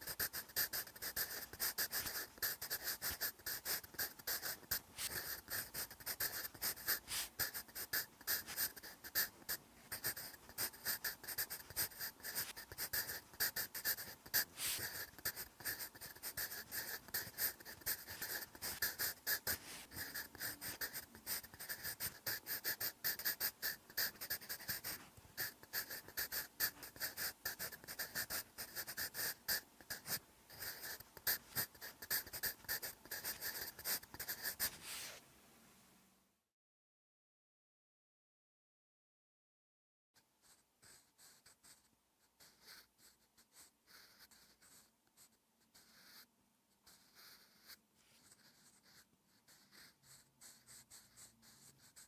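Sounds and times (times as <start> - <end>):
pencil writing on paper: 0.0 - 35.2, 40.4 - 52.0.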